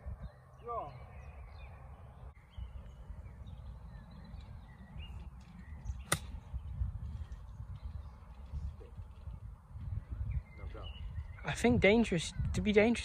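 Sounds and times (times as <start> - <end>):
wind rumbling on microphone: 0.0 - 13.0
golf club striking ball: 6.0 - 6.4.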